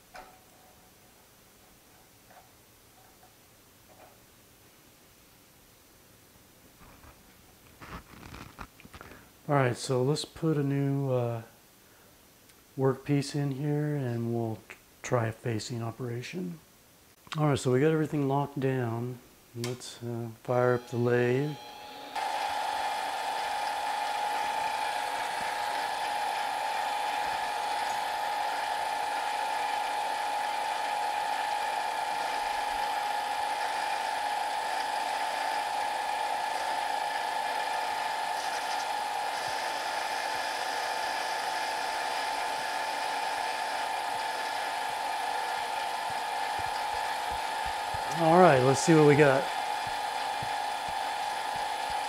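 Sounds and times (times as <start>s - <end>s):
lathe running with high whine: 20.7s - 52.0s
lathe tool cutting metal: 20.7s - 52.0s.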